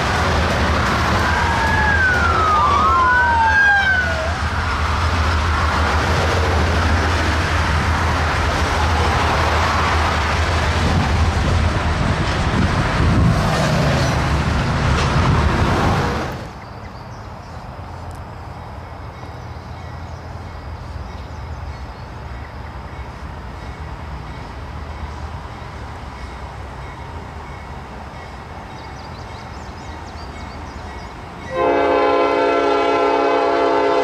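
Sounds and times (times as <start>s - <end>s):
freight cars rumbling on steel bridge: 0.0s - 34.0s
highway traffic hiss: 0.0s - 34.0s
high wailing tone: 1.2s - 4.4s.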